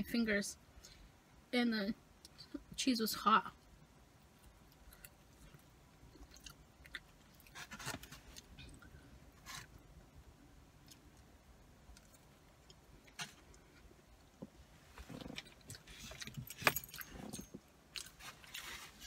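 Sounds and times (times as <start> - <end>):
faint chewing: 4.2 - 9.8.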